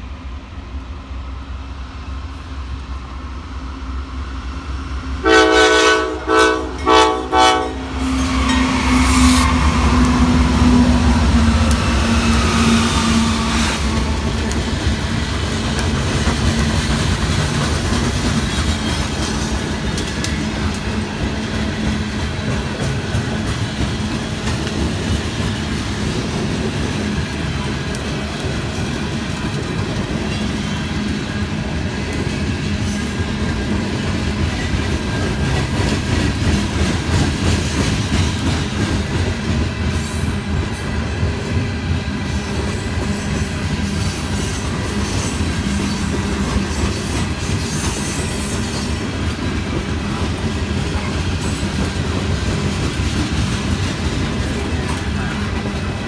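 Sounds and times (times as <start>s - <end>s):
train cars rolling on rails: 0.0s - 56.0s.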